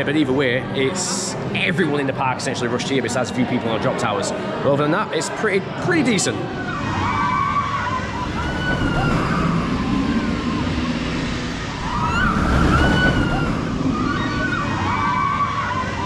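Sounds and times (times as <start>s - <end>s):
riders screaming: 6.5s - 16.0s
rush of wind: 7.6s - 16.0s.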